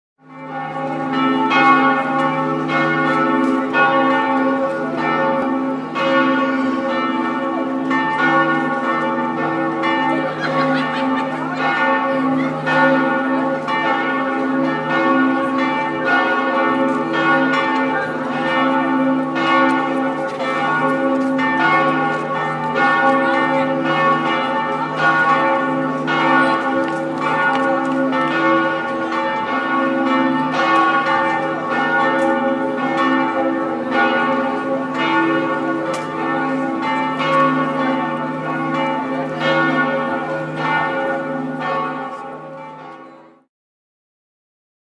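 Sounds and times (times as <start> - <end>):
church bells pealing: 0.2 - 43.5.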